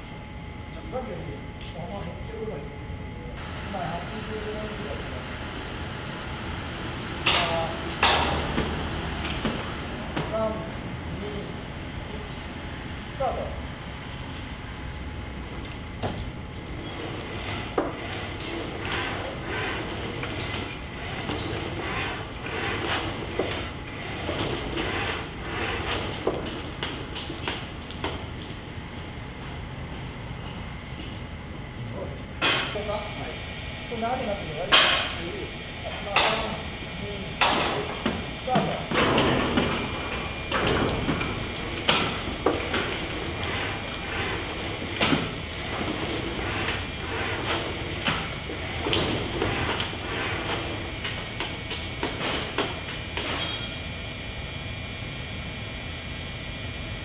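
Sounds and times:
robot actuators whirring: 14.1s - 29.2s, 33.4s - 57.0s.

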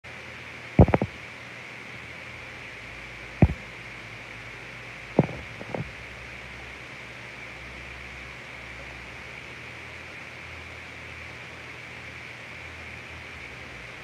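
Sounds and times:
steady hiss: 0.1s - 14.0s
handling bumps on phone microphone: 0.8s - 1.1s, 5.2s - 5.9s.

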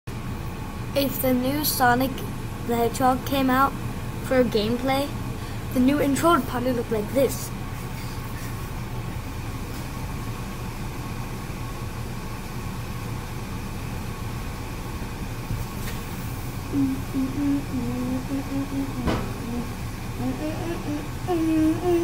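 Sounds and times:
low background hum: 0.1s - 22.0s
child humming a tune: 16.7s - 22.0s.

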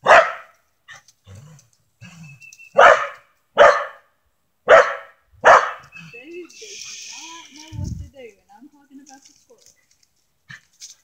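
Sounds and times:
dog barking: 0.0s - 0.5s, 2.8s - 5.9s.

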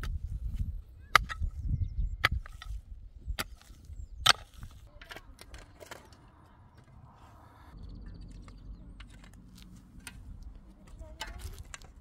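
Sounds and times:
low rumble: 6.4s - 10.9s.

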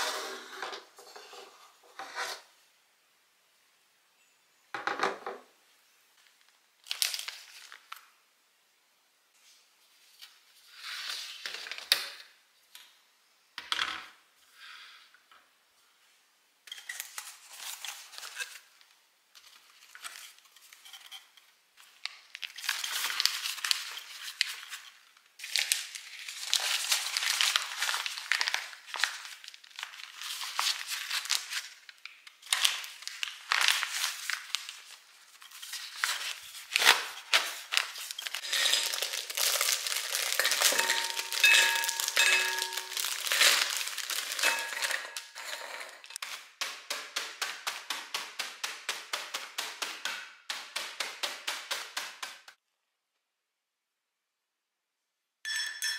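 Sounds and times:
food packets crinkling: 6.8s - 8.1s, 21.8s - 46.6s.

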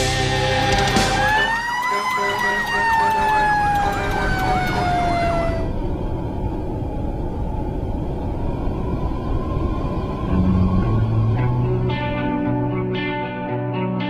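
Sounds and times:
music: 0.0s - 2.6s, 10.3s - 14.0s
siren wailing: 0.5s - 13.0s
fast yelp siren: 1.2s - 6.0s.

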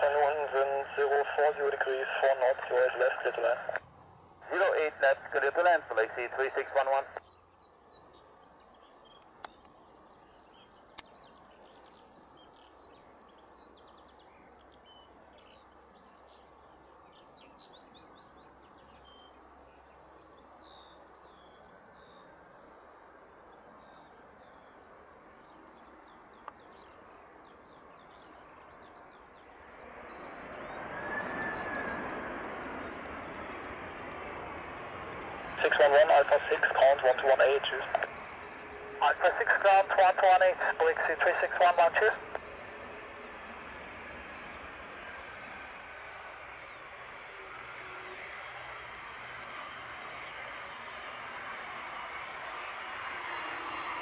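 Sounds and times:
faint distant background noise: 0.0s - 54.0s
small birds chirping and trilling: 7.2s - 35.1s, 47.6s - 54.0s
jet engines rushing and whining: 29.6s - 54.0s.

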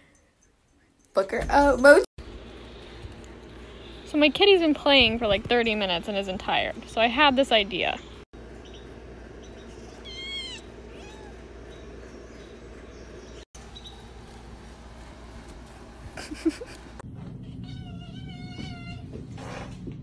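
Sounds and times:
cat meowing: 10.0s - 11.4s.

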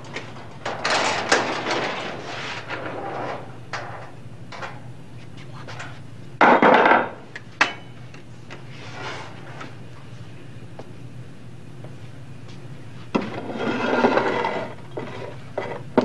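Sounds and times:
steady low hum: 0.0s - 16.0s
scraping clatter: 13.2s - 15.8s.

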